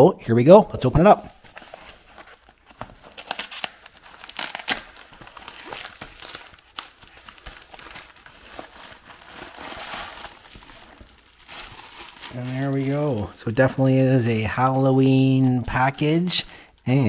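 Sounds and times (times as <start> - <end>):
plastic mailer crinkling: 1.4 - 17.0.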